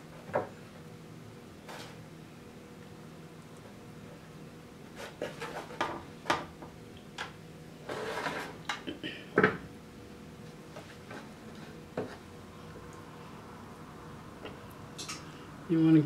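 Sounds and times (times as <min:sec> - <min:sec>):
scraping in metal pan: 0:07.8 - 0:08.6.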